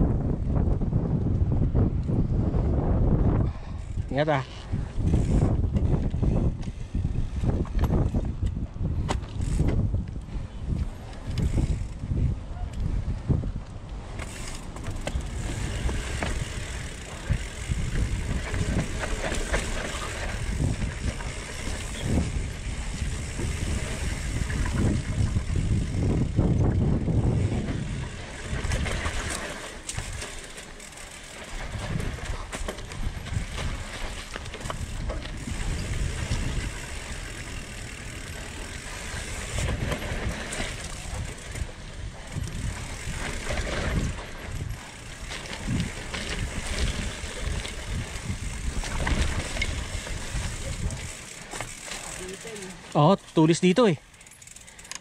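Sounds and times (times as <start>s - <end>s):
wind buffeting microphone: 0.0s - 30.2s, 30.8s - 51.9s
bike chain and frame rattling: 3.5s - 55.0s
tyres crunching over dirt: 13.9s - 25.9s.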